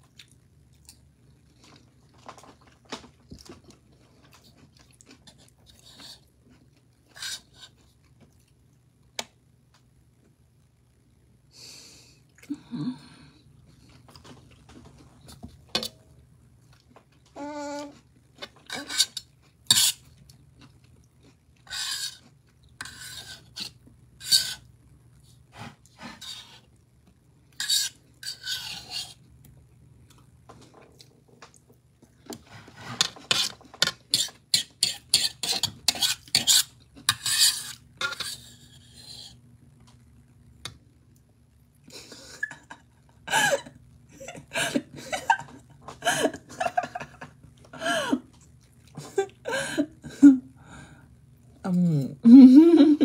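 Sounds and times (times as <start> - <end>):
fork scraping a bowl: 5.2 - 6.3, 7.1 - 7.8, 18.5 - 20.1, 21.7 - 24.7, 25.6 - 26.7, 27.6 - 29.2, 32.4 - 39.4.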